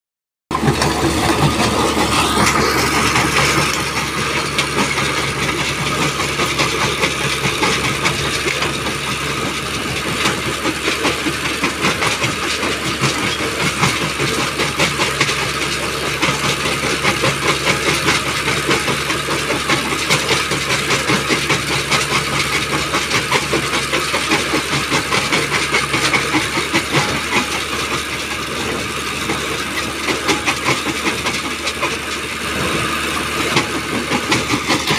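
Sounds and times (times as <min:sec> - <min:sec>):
stone crusher engine running: 0:00.5 - 0:34.9.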